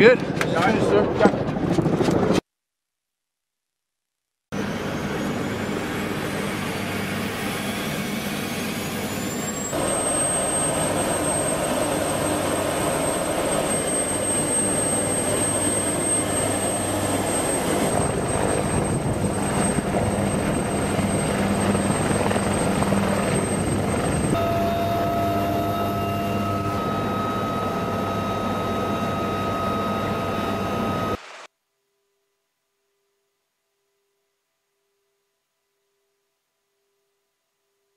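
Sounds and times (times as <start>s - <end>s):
helicopter turbine engine whine: 4.6s - 31.2s.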